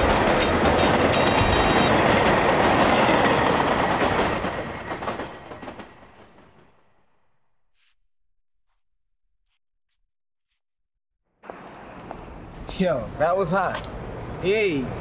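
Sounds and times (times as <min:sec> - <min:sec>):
train wheels clattering on rails: 0:00.0 - 0:06.9.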